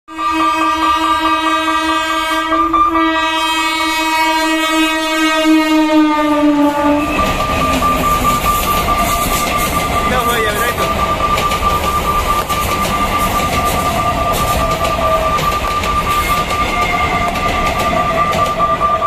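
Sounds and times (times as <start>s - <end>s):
train horn blast: 0.1s - 10.1s
train wheels rushing on rails: 1.6s - 19.0s.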